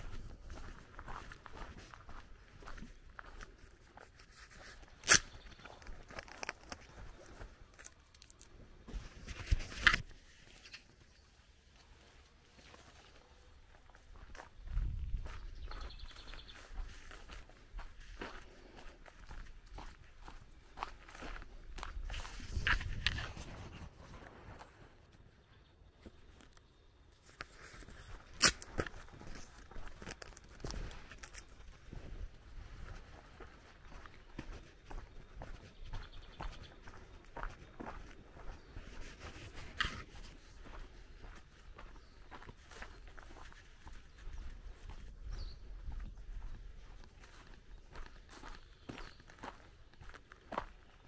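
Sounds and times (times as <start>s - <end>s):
leaves rustling against microphone: 0.0s - 20.4s, 21.0s - 25.2s, 26.1s - 50.7s
leaves rustling: 4.2s - 13.4s
footsteps: 11.8s - 25.1s, 27.2s - 45.1s.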